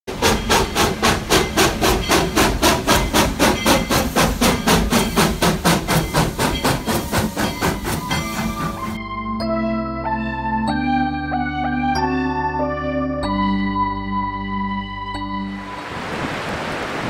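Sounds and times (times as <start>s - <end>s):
steam locomotive chuffing: 0.1s - 9.0s.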